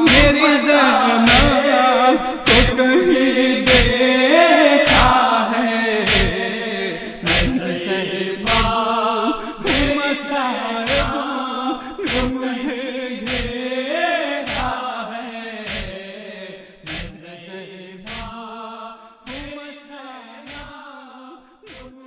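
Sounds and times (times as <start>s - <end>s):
rhythmic chest-beating thumps: 0.0s - 0.4s, 1.3s - 1.6s, 2.4s - 2.8s, 3.6s - 4.0s, 4.9s - 5.2s, 6.1s - 6.4s, 7.2s - 7.6s, 8.5s - 8.8s, 9.6s - 10.0s, 10.9s - 11.2s, 12.0s - 12.3s, 13.3s - 13.6s, 14.5s - 14.7s, 15.7s - 16.0s, 16.8s - 17.2s, 18.1s - 18.3s, 19.3s - 19.6s, 20.5s - 20.7s, 21.7s - 21.9s
men chanting: 0.0s - 22.0s.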